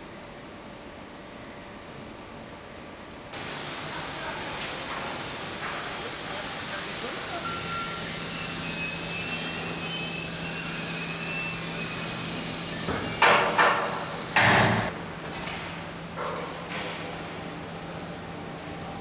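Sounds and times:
machinery hum: 0.0s - 19.0s.

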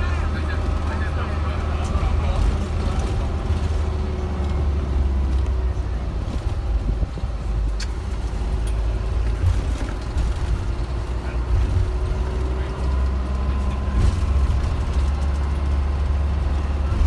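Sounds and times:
bus engine and road rumble: 0.0s - 17.0s.

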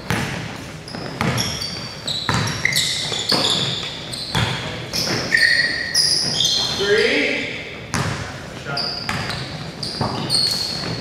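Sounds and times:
basketball bouncing on gym floor: 0.0s - 5.5s, 7.8s - 11.0s
sneakers squeaking on floor: 0.0s - 11.0s.

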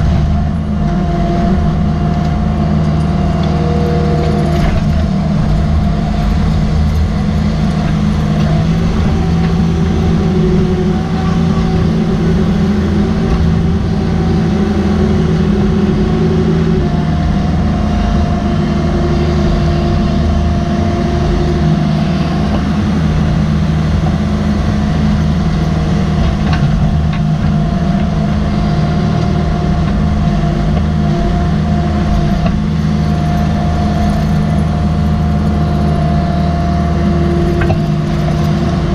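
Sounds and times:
excavator engine drone: 0.0s - 38.9s
hydraulic whine: 0.0s - 38.9s.

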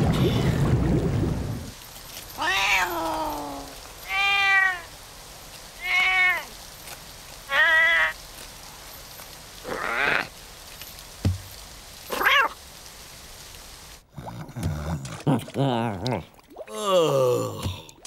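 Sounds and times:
fountain hiss: 0.0s - 14.4s.

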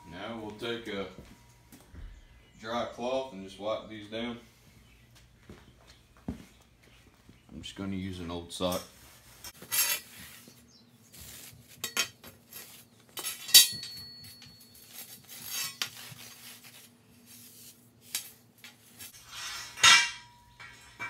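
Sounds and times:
sharp ringing metal clank: 13.4s - 14.6s, 19.4s - 21.0s
metallic clinks: 13.4s - 14.9s.

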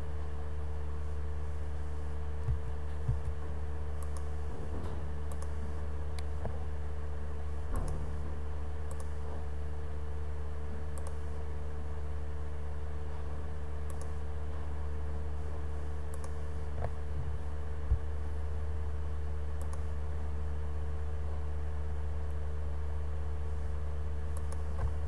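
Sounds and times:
low electrical hum: 0.0s - 25.0s
computer mouse clicks: 4.0s - 4.4s, 5.3s - 6.5s, 8.9s - 9.2s, 10.9s - 11.2s, 13.8s - 14.2s, 16.1s - 17.0s, 19.6s - 19.9s, 24.3s - 25.0s.

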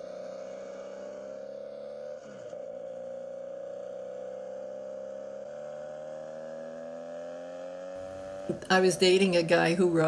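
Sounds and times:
music of long held tones: 0.0s - 5.5s.

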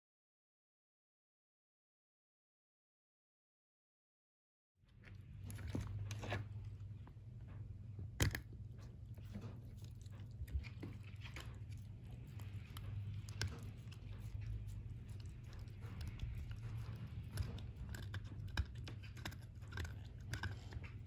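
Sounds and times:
low steady hum: 4.8s - 21.0s
dog chewing rubber ball: 5.0s - 21.0s.

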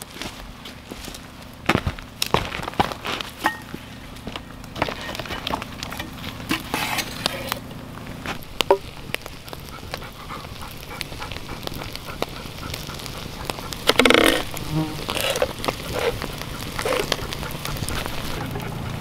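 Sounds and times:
campfire crackling: 0.0s - 19.0s
sharp snaps and pops: 7.2s - 18.7s.

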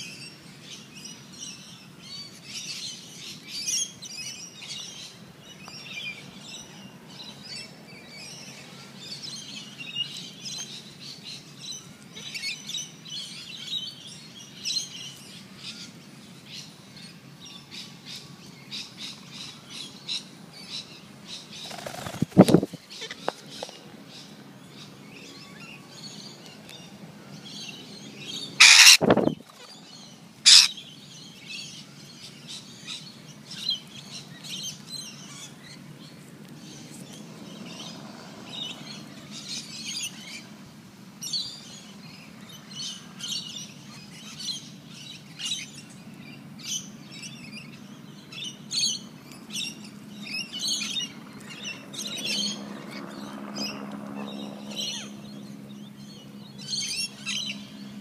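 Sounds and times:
birds chirping: 0.0s - 40.6s, 41.2s - 58.0s
loud harsh sounds: 28.6s - 29.2s.

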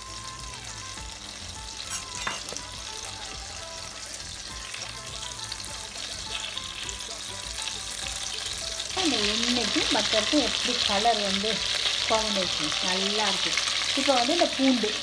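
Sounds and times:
butter sizzling in hot oil: 0.0s - 15.0s
metal spoon in pot: 1.8s - 2.6s.

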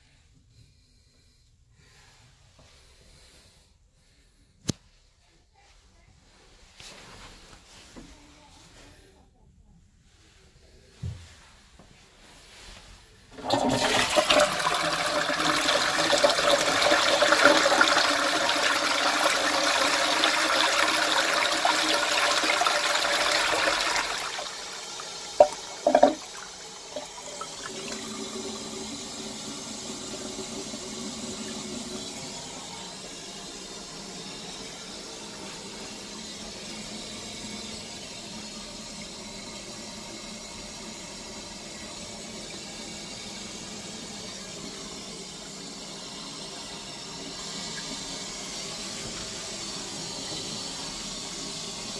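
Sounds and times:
cistern refilling hiss: 13.2s - 51.9s
toilet flushing water rush: 13.3s - 51.9s.

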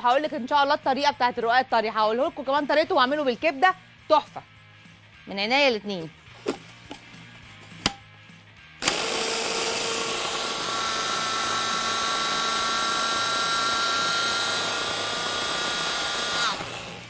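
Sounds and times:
food processor motor whining: 8.8s - 17.0s.

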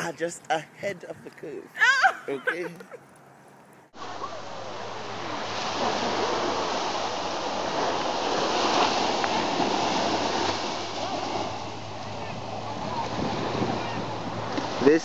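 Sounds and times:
waves washing onto beach: 4.0s - 15.0s.

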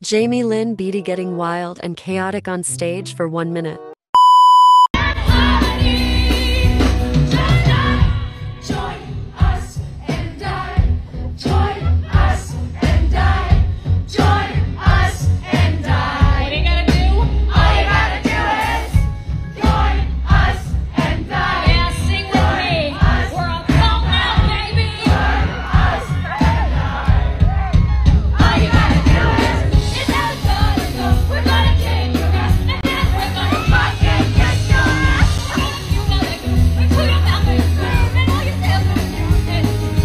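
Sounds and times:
loud band playing: 5.0s - 9.6s, 11.6s - 40.0s
steady drum beat: 5.4s - 40.0s
woman singing into microphone: 32.7s - 39.9s.

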